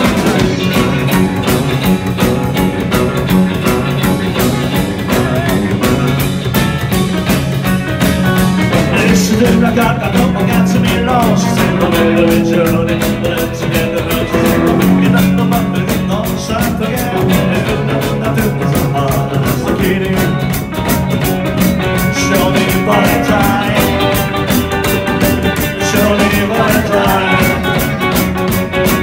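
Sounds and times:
man singing: 0:00.0 - 0:01.8, 0:04.7 - 0:06.4, 0:08.7 - 0:21.0, 0:21.8 - 0:29.0
rock and roll band playing: 0:00.0 - 0:29.0.

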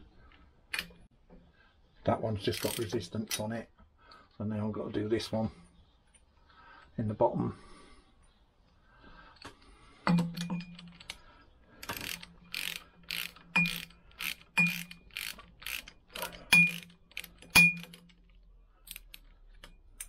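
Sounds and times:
socket ratchet clicking: 0:11.8 - 0:18.2.

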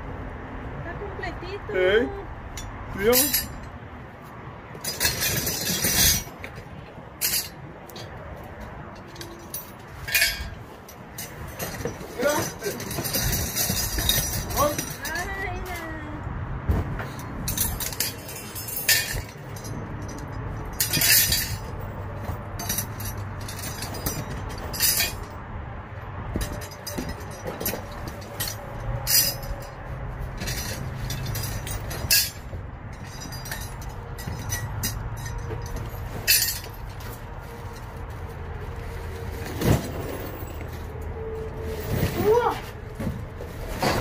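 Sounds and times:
knocks clinks and rustles: 0:02.5 - 0:03.8, 0:04.7 - 0:25.4, 0:26.3 - 0:44.0
rummaging through cardboard boxes: 0:41.4 - 0:44.0.

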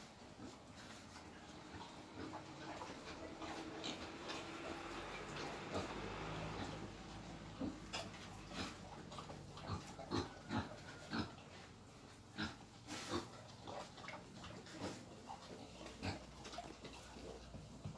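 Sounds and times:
wild boar grunting: 0:01.6 - 0:14.0.

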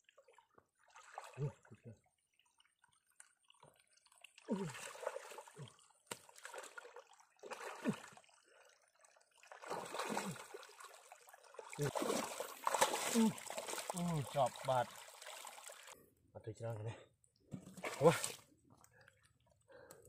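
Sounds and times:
hands sloshing in muddy water: 0:03.4 - 0:08.7, 0:09.4 - 0:16.0, 0:17.6 - 0:19.1.

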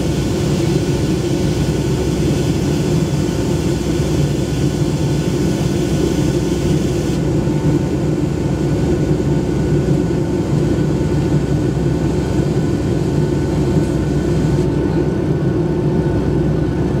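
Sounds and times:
rushing air hiss: 0:00.0 - 0:08.6
jet engine drone in cabin: 0:00.0 - 0:17.0.

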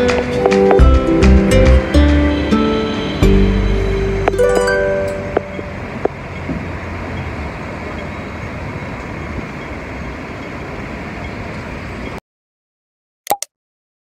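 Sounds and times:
plucked background music: 0:00.0 - 0:05.8
distant traffic: 0:00.0 - 0:12.2.

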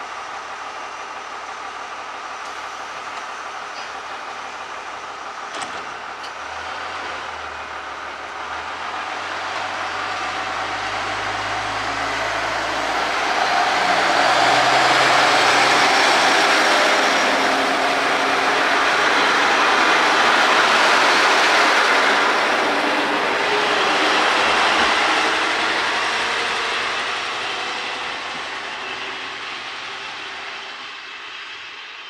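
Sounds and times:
diesel railcar passing: 0:00.0 - 0:32.0.

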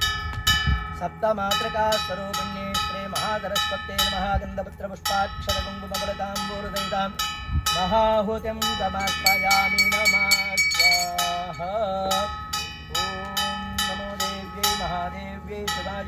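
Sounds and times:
wavering melody: 0:05.1 - 0:16.0
hand bell ringing rapidly: 0:08.7 - 0:14.9.

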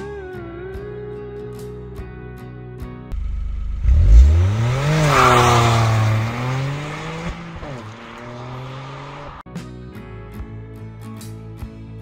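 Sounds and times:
car engine revving: 0:03.1 - 0:09.4.

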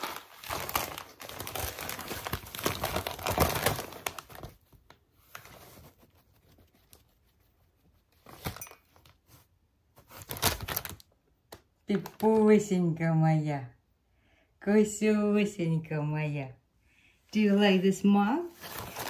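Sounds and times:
packing paper crinkling: 0:00.0 - 0:07.4, 0:08.1 - 0:12.4, 0:18.5 - 0:19.0.

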